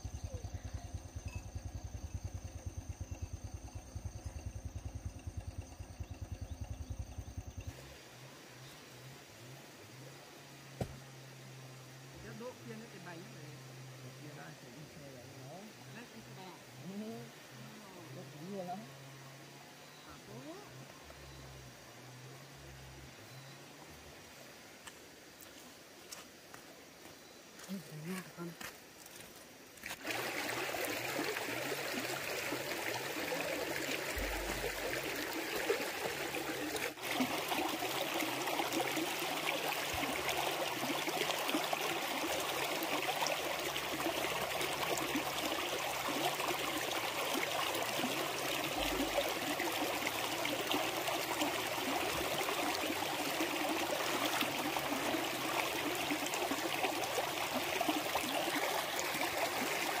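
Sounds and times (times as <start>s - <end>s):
water running: 29.8s - 60.0s.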